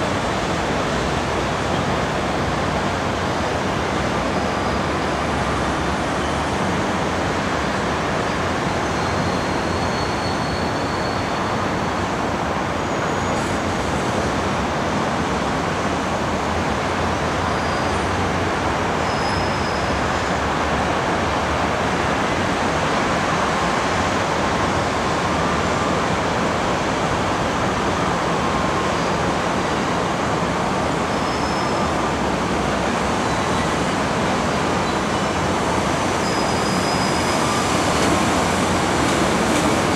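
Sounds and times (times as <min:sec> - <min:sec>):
city traffic noise: 0:00.0 - 0:39.9
electric trains running: 0:19.9 - 0:39.9.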